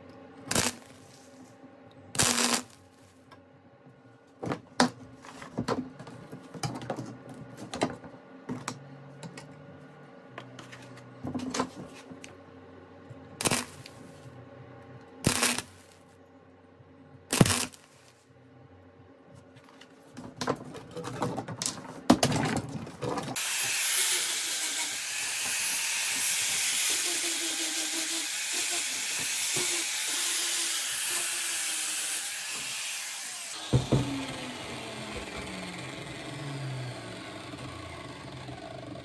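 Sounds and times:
angle grinder grinding: 23.4 - 39.0.

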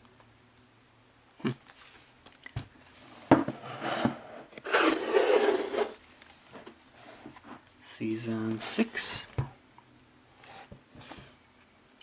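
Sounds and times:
cardboard rubbing and sliding: 3.6 - 6.0.

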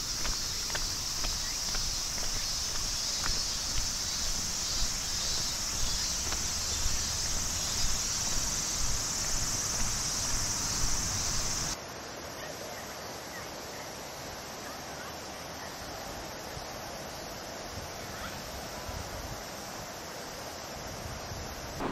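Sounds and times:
footsteps on paved path: 0.0 - 11.8
river running over stones: 0.0 - 12.3
cicadas droning: 0.0 - 21.9.

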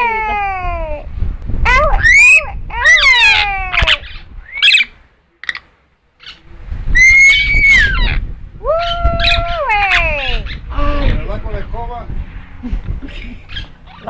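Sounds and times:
parrot calling: 1.7 - 6.4, 7.0 - 11.2, 13.1 - 14.0.

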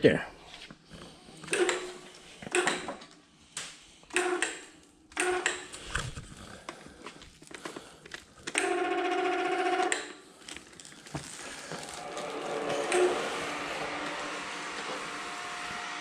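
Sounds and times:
electric chain hoist humming: 4.1 - 5.8, 8.5 - 16.0
hoist click: 4.1 - 6.1.

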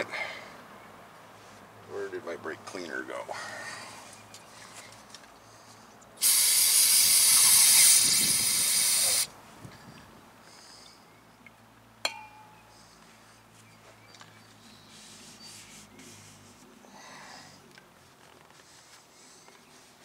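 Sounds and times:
aerosol spray hiss: 6.2 - 9.3.

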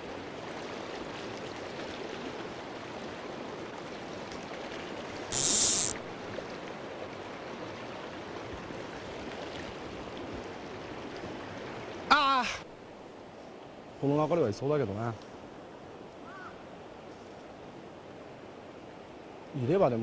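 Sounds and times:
river running over stones: 0.0 - 13.0
brief loud hiss: 5.3 - 6.0.

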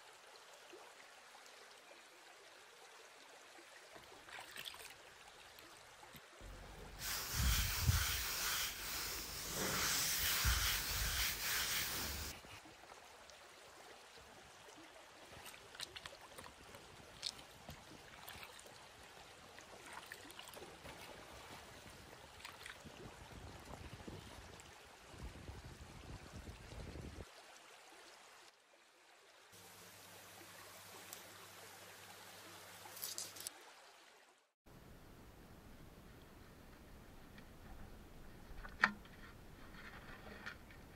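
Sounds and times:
metal tray being scrubbed: 6.9 - 12.4
seawater splashing and sloshing: 19.7 - 23.0
low steady hum: 34.7 - 40.5.

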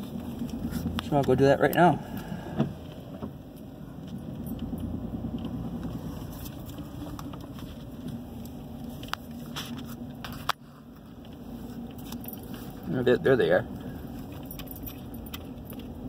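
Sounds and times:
engine and tyre rumble: 0.0 - 16.0.

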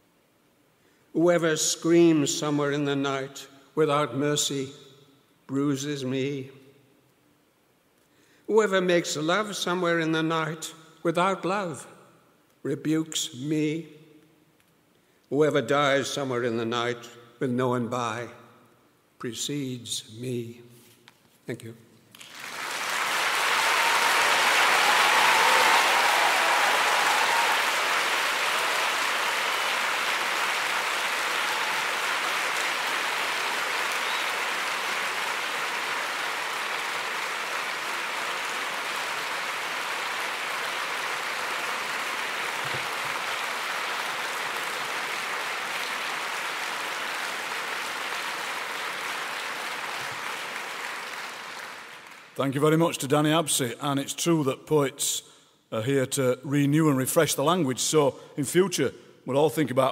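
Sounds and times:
audience applauding: 22.2 - 52.4.

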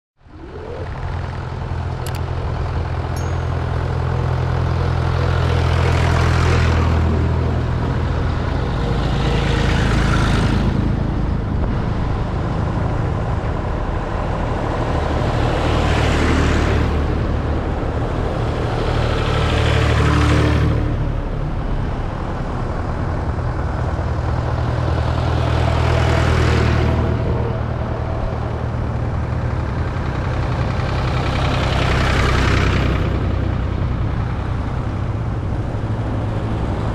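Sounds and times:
tractors driving past: 0.2 - 36.9.

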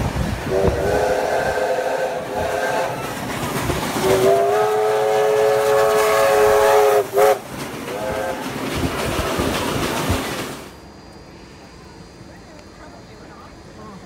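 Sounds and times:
steam trains rumbling: 0.0 - 14.0
steam locomotive whistle: 0.4 - 3.3, 4.0 - 8.4.

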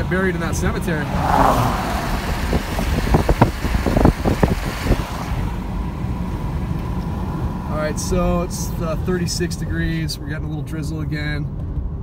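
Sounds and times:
car driving on wet road: 0.0 - 7.7.

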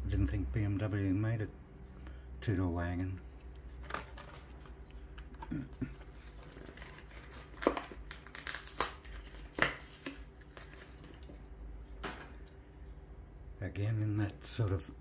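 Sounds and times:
plastic packaging crinkling: 3.8 - 11.4.

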